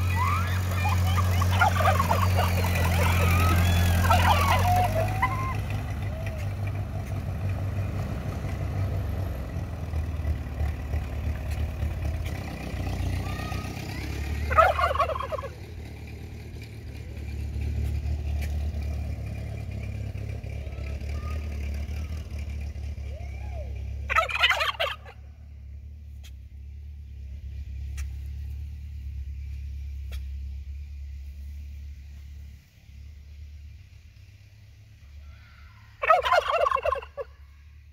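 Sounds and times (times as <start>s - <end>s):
turkeys gobbling: 0.0s - 6.8s, 14.3s - 16.0s, 24.0s - 25.3s, 35.2s - 37.5s
tractor engine running: 0.0s - 35.2s, 35.9s - 37.9s
soft turkey calls: 0.1s - 5.6s, 14.5s - 15.6s, 24.0s - 25.2s, 35.1s - 37.6s.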